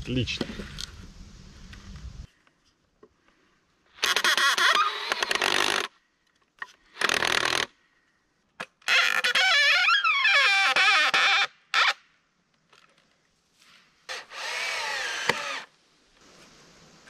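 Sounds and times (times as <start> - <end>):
power drill driving screws into wood: 4.0 - 5.9, 6.9 - 7.7, 14.1 - 15.7.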